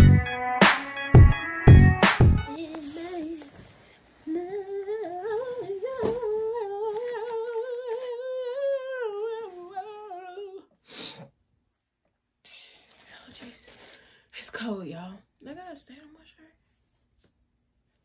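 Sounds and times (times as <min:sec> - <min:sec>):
woman humming: 0:06.4 - 0:10.7.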